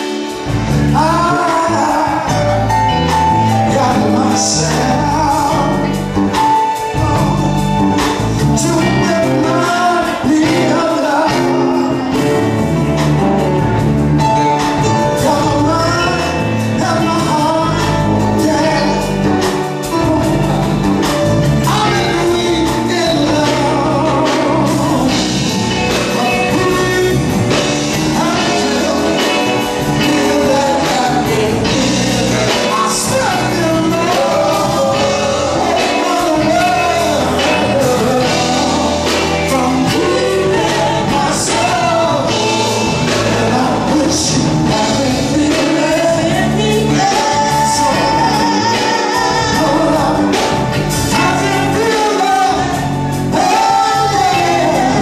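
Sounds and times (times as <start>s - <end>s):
man singing into microphone: 0.0s - 13.0s, 14.2s - 55.0s
backing music with steady beat: 0.0s - 55.0s.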